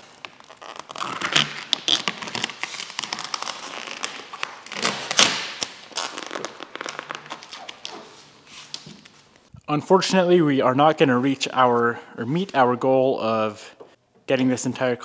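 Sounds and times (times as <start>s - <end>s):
vinyl film crinkling: 0.0s - 9.5s.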